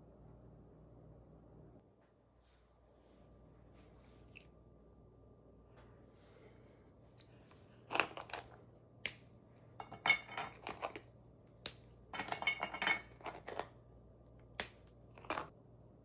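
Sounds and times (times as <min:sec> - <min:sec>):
brittle snapping: 0:09.0 - 0:09.3, 0:11.6 - 0:11.9, 0:14.6 - 0:15.3
pieces clinking into glass dish: 0:12.2 - 0:13.6.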